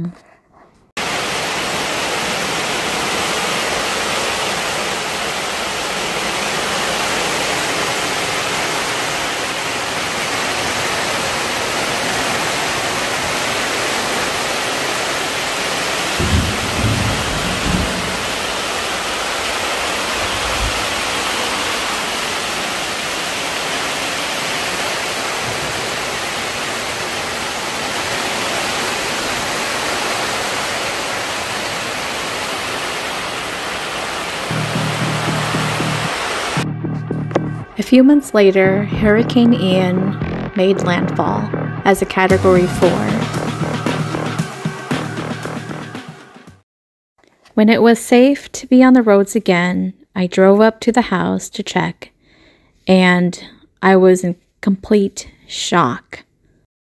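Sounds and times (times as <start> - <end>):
heavy rain on a tarp: 1.0 - 36.6
low thumps: 16.2 - 19.0, 34.5 - 37.8, 38.6 - 46.0.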